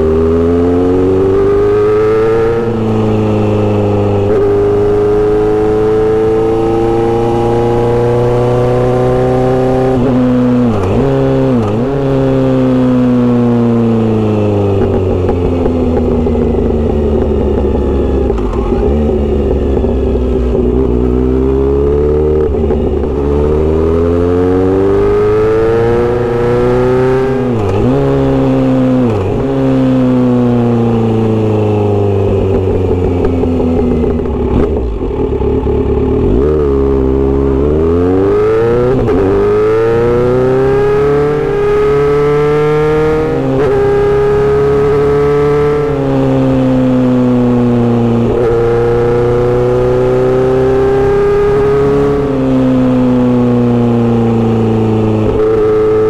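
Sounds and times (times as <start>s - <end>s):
motorcycle exhaust accelerating: 0.0s - 56.0s
motorcycle gear shifts: 14.3s - 29.8s.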